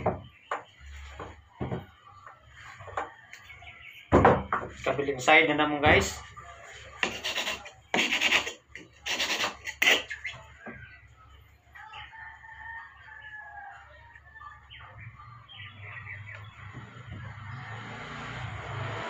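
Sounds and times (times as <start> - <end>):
distant rooster crowing: 0.9 - 4.2, 11.8 - 19.0.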